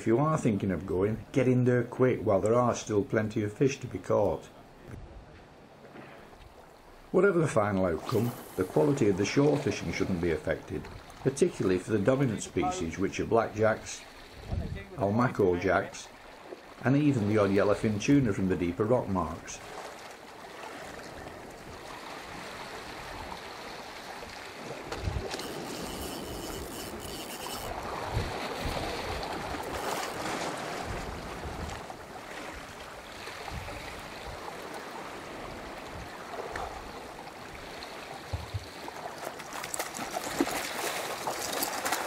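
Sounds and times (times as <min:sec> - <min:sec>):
surf washing against rocks: 0:19.5 - 0:42.0.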